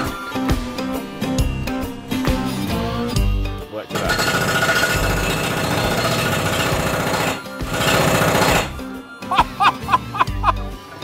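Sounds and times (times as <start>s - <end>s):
hydraulic breaker pounding: 4.0s - 8.8s.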